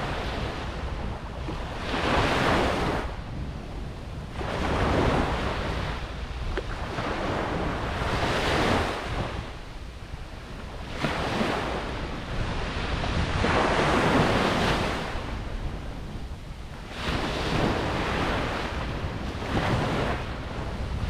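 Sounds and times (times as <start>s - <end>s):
ocean waves breaking: 0.0s - 21.0s.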